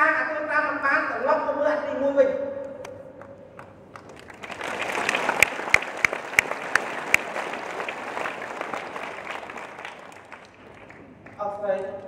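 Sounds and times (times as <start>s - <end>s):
sharp claps close by: 2.6s - 12.0s
audience applauding: 3.3s - 12.0s.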